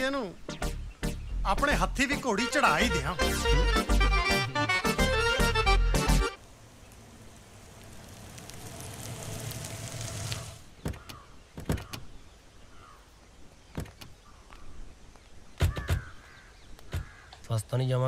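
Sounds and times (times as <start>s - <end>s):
car driving up: 6.4s - 10.7s.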